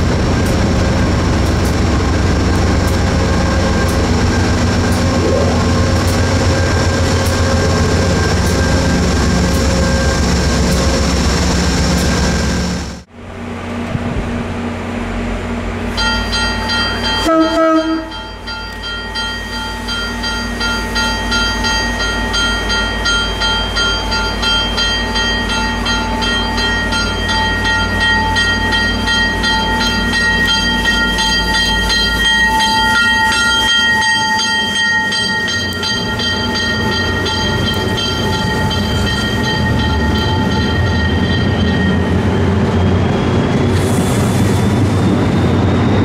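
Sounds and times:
train rumbling: 0.0 - 46.0
train wheel clicks: 0.4 - 3.2, 6.0 - 11.0
steady high tones: 16.0 - 43.7.

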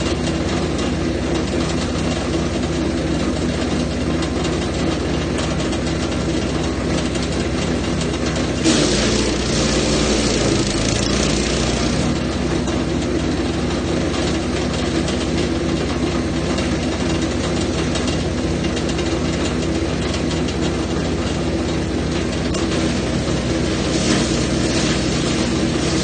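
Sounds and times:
wood chipper shredding branches: 0.0 - 26.0.

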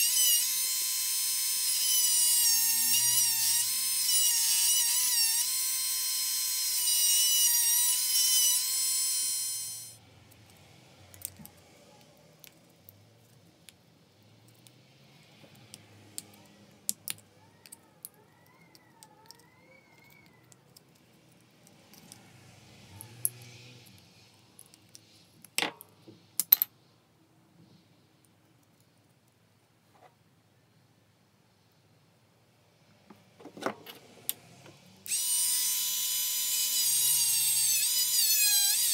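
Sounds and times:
rotary tool whining: 0.0 - 10.0, 35.0 - 38.9.

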